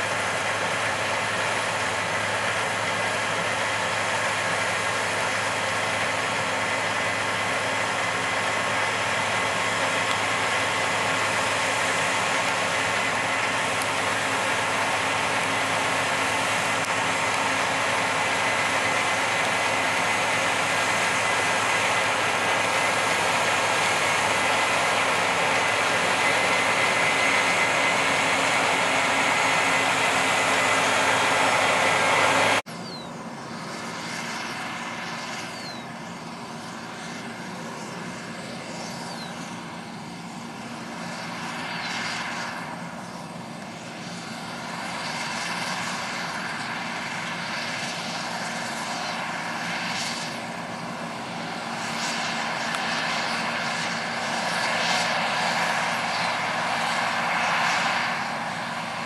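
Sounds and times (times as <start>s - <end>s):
combine harvester droning: 0.0s - 59.0s
quieter combine harvester drone: 0.0s - 59.0s.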